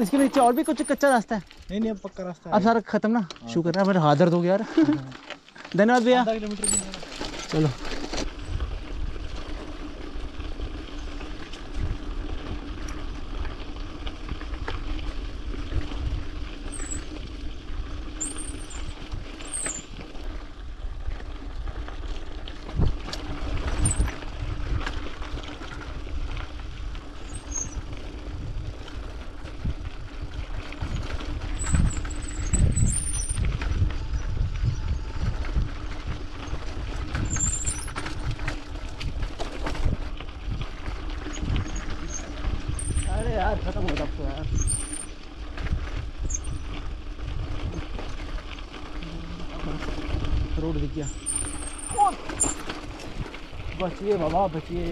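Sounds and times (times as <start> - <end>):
bike frame rattling and thumping: 0.0 - 2.0, 4.6 - 8.5, 18.0 - 20.3, 22.6 - 25.0, 30.6 - 34.1, 36.4 - 46.8, 51.0 - 54.9
brakes squealing: 0.0 - 2.5, 4.2 - 8.5, 16.5 - 20.0, 27.1 - 27.9, 30.8 - 35.5, 36.4 - 38.3, 41.2 - 45.2, 46.2 - 46.9, 48.9 - 53.1
tyres crunching on gravel: 0.0 - 34.2, 35.4 - 54.9.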